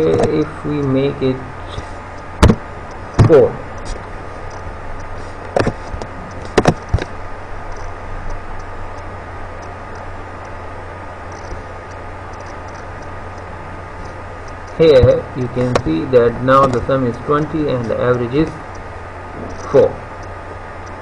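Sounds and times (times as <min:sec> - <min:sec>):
background hiss: 0:00.0 - 0:21.0
low hum: 0:00.0 - 0:21.0
computer mouse clicks: 0:11.3 - 0:14.7.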